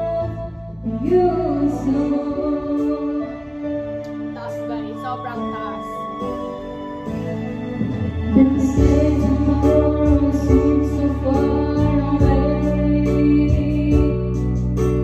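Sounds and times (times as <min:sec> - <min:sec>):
girl singing into a microphone: 0:00.0 - 0:03.6, 0:08.3 - 0:14.4
karaoke music with guitar: 0:00.0 - 0:15.0.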